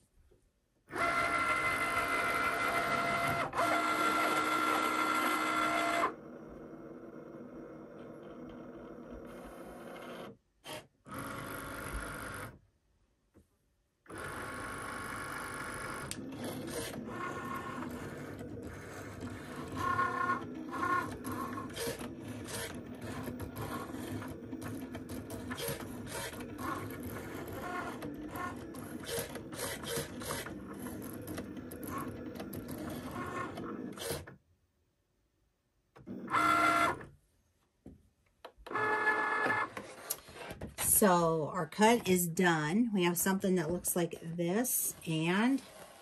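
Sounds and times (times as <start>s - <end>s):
cutting machine motor whir: 0.9s - 6.3s.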